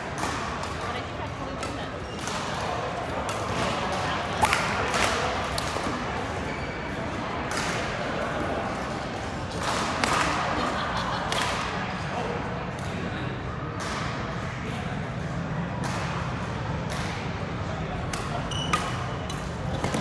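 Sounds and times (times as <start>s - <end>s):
crowd chatter: 0.0s - 20.0s
rackets striking shuttlecock: 18.0s - 20.0s.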